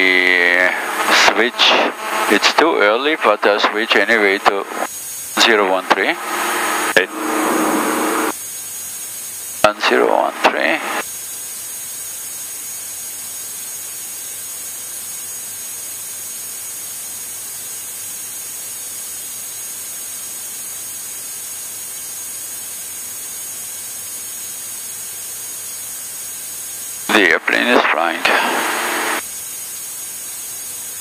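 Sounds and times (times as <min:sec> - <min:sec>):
aircraft cockpit hiss: 0:00.0 - 0:08.4, 0:09.6 - 0:12.9, 0:26.4 - 0:31.0
thin high whine: 0:00.0 - 0:08.4, 0:09.6 - 0:11.0, 0:27.1 - 0:29.2.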